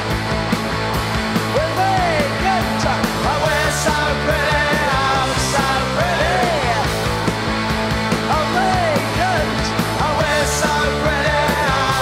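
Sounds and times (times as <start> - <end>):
drum kit beat: 0.0 - 12.0
electric guitar: 0.0 - 12.0
man singing: 1.5 - 7.0, 8.3 - 12.0.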